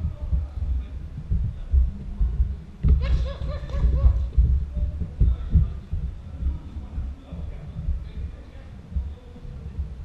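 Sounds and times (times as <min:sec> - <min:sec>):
people laughing: 0:02.9 - 0:04.5.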